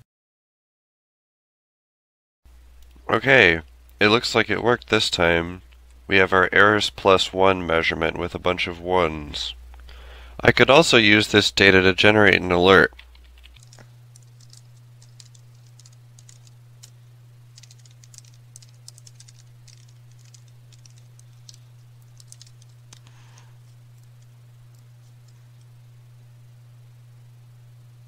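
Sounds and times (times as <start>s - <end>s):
steady low hum: 2.5s - 28.0s
keyboard typing: 12.9s - 25.8s.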